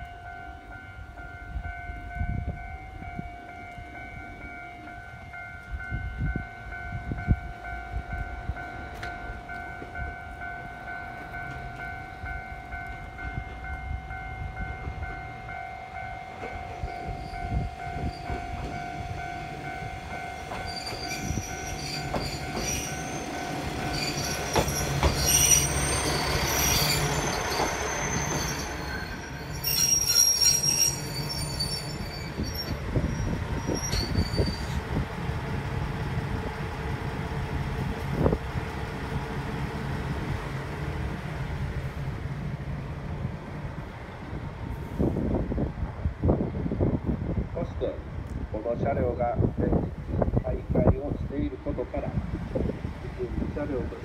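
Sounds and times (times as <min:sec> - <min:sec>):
railcar running noise: 0:00.0 - 0:54.0
wheels squealing: 0:20.5 - 0:34.8.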